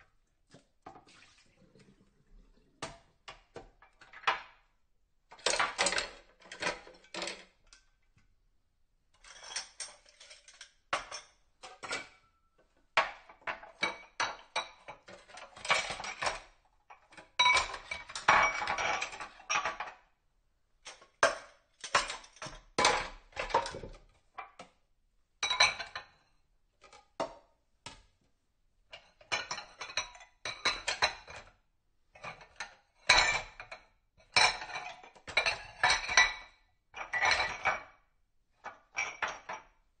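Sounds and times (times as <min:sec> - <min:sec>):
dishes and cutlery clinking: 0:05.3 - 0:07.6, 0:09.2 - 0:20.1, 0:25.4 - 0:26.2, 0:28.9 - 0:31.5, 0:32.1 - 0:38.0.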